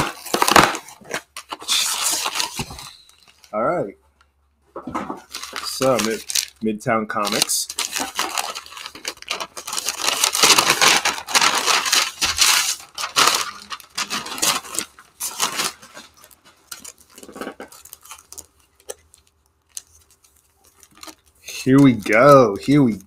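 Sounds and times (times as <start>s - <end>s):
cardboard box tearing and rustling: 0.0s - 2.9s, 5.3s - 6.5s, 7.3s - 18.2s.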